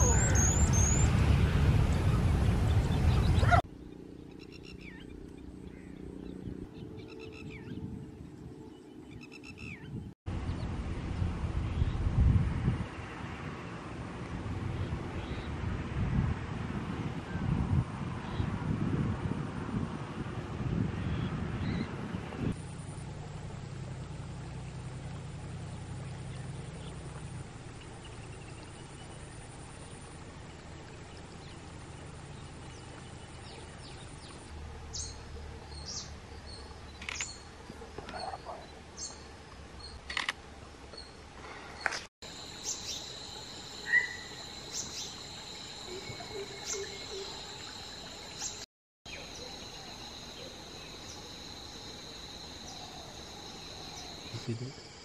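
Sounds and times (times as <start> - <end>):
high insect buzz: 42.3 - 54.8.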